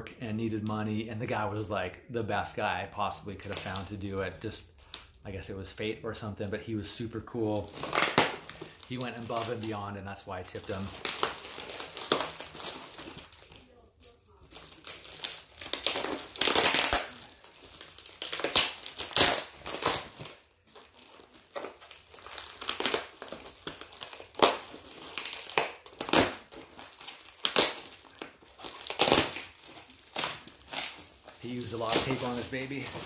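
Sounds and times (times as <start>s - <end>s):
taped packaging being torn open: 7.5s - 33.0s.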